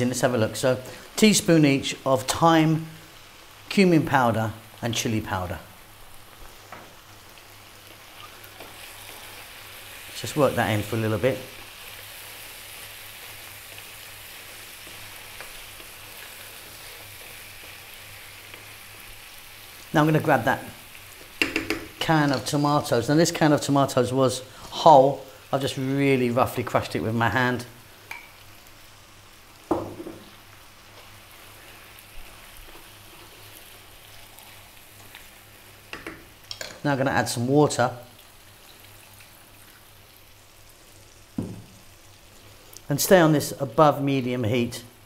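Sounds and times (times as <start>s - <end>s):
food sizzling in pan: 0.0s - 45.0s
wooden spoon tapping: 21.4s - 22.0s, 35.9s - 36.7s.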